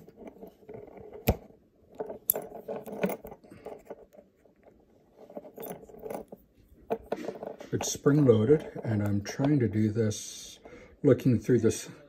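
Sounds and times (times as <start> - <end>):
chain rattling: 2.0 - 8.9.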